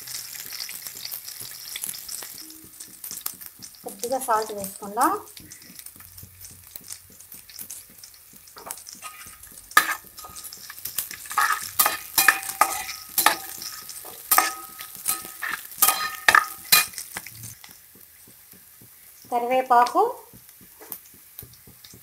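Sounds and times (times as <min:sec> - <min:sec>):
onions sizzling in oil: 0:00.0 - 0:22.0
ladle scraping and knocking pan: 0:07.4 - 0:17.8.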